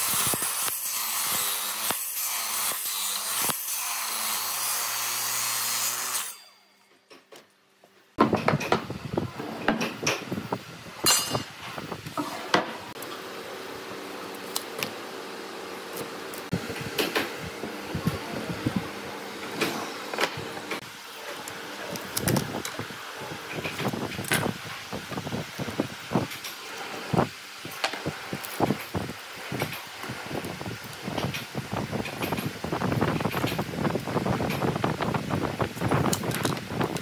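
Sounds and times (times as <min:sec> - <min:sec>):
electric miter saw cutting wood: 0:00.0 - 0:06.5.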